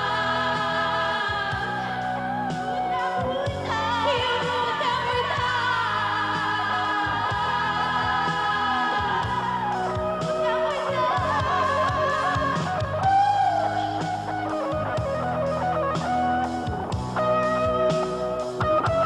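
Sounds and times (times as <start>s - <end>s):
bass: 0.0s - 19.0s
electric guitar lead line: 0.0s - 19.0s
drum kit beat: 6.4s - 19.0s.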